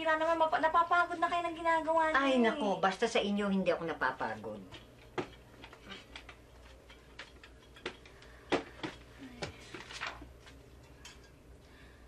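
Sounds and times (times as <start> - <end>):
paper rustling: 9.4 - 10.6.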